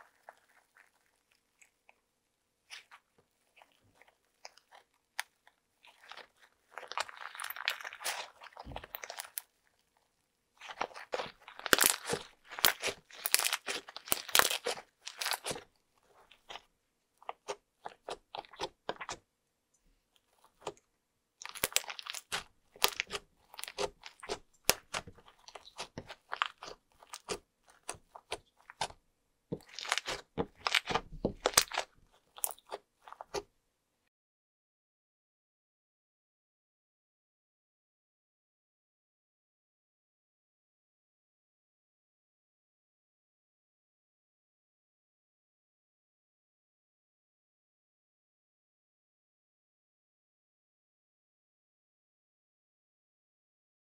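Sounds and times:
slime crunching and popping: 2.7s - 9.6s, 10.6s - 19.2s, 21.4s - 29.0s, 29.6s - 33.5s.

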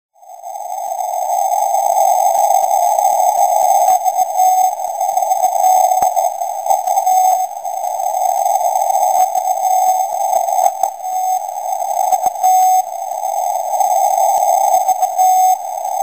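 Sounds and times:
faint morse tone: 10.9s - 16.0s.

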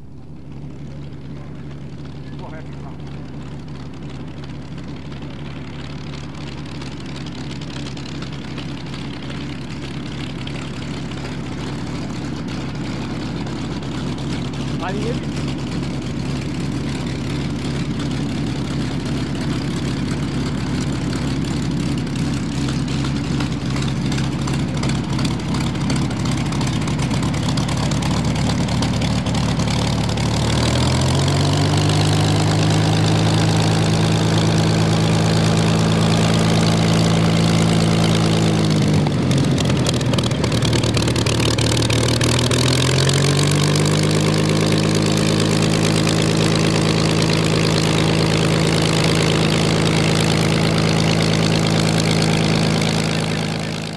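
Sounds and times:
aircraft piston engine running: 0.2s - 53.9s.

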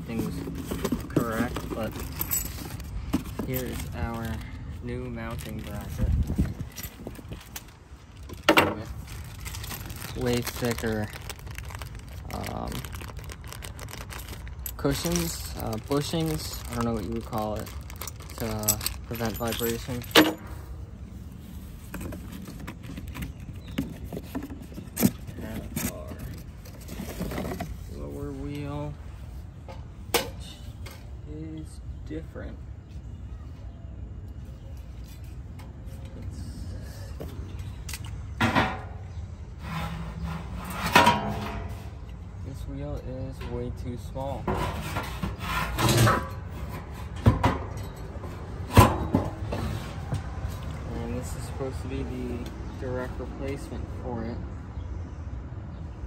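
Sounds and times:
cardboard box rustling and knocking: 0.2s - 3.9s
metal scraping: 39.5s - 42.0s, 44.4s - 50.0s.

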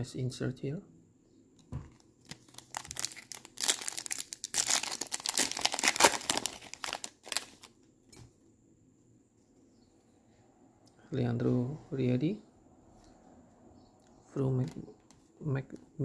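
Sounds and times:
wrapper crinkling and tearing: 1.9s - 7.8s.

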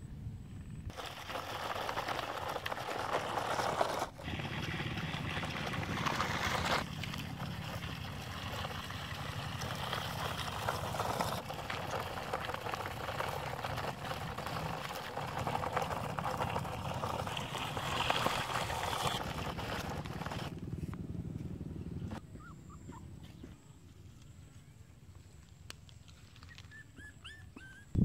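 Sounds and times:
low steady hum: 0.0s - 1.6s
toy truck wheels crackling on gravel: 0.9s - 20.5s.

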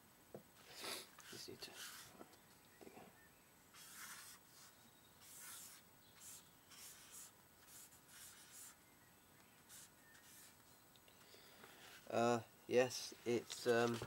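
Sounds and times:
pen scratching on paper: 1.3s - 2.1s, 3.7s - 8.8s, 9.7s - 10.6s.

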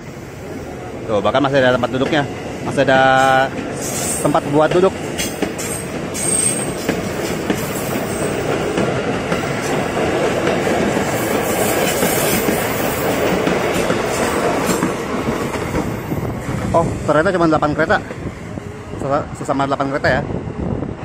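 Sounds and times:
train wheels rumbling on rail: 0.0s - 21.0s
high wheel squeal: 5.6s - 6.9s, 7.6s - 8.5s.

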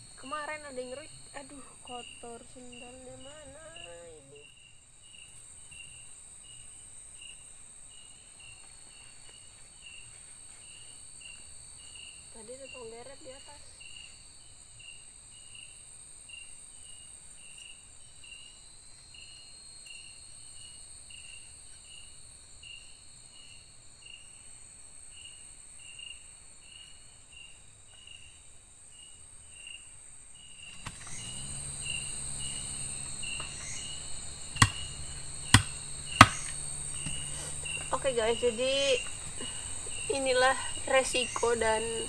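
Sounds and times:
insect chirp: 0.0s - 42.0s
insects trilling: 0.0s - 42.0s
sharp knocks: 34.6s - 34.9s, 35.5s - 37.2s.

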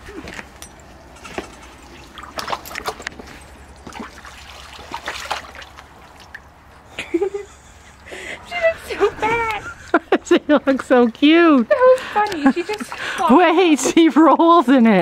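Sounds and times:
water splashing in a plastic pool: 1.4s - 7.0s.

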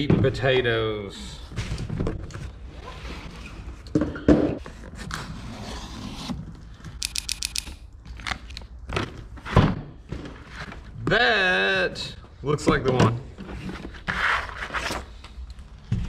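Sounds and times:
quick run of clicks: 7.0s - 7.8s.

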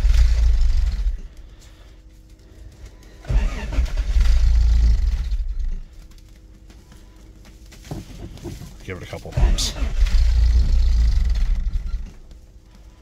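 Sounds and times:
starter motor cranking engine: 0.0s - 1.6s, 3.1s - 5.9s, 8.6s - 13.0s.

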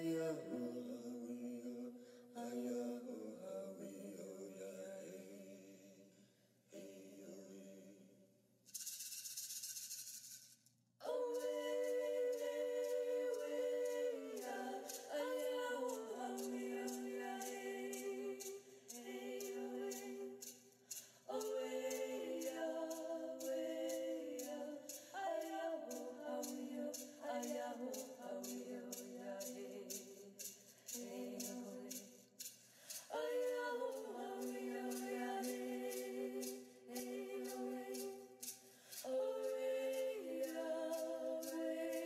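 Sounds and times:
unaccompanied group singing: 0.0s - 6.0s, 6.7s - 8.1s, 11.0s - 42.0s
steady beat of short clicks: 11.3s - 42.0s.

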